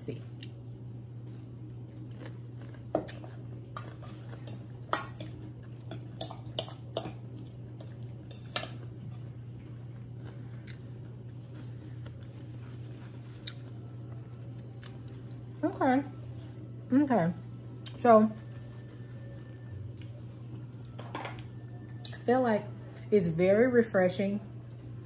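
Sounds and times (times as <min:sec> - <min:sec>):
steady low hum: 0:00.0 - 0:25.0
utensil clinking against bowl: 0:03.8 - 0:08.8.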